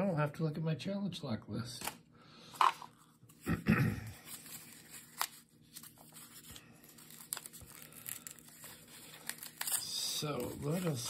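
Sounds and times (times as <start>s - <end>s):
paper rustling: 4.2s - 11.0s.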